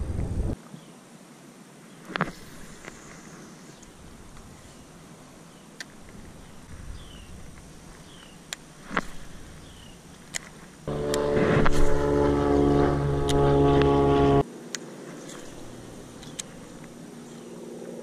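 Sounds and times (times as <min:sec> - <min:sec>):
boat motor humming: 0:06.0 - 0:14.4, 0:15.3 - 0:17.5
faint clicks: 0:14.7 - 0:17.0.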